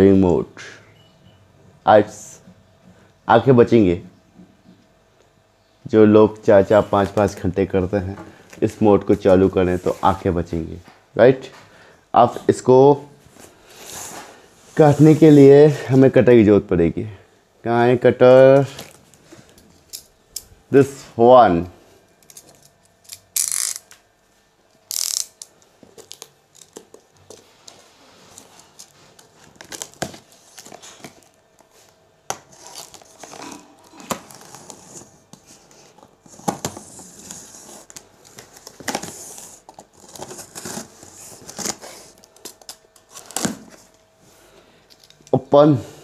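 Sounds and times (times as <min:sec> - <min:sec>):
tape tearing: 0:22.2 - 0:24.0, 0:24.8 - 0:31.4, 0:32.3 - 0:43.9
box cutter slicing tape: 0:23.1 - 0:23.8
cardboard rustling: 0:25.8 - 0:43.9.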